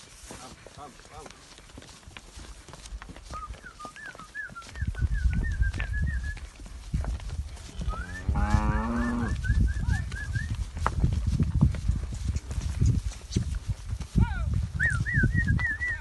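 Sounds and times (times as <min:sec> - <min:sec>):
cow mooing: 0:07.9 - 0:09.4.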